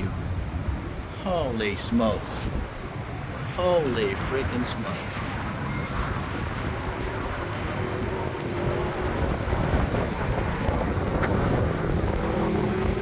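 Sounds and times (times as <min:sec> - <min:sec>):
motor traffic rumble: 0:00.0 - 0:13.0
wind buffeting microphone: 0:00.0 - 0:13.0
faint engine tone: 0:05.6 - 0:10.9.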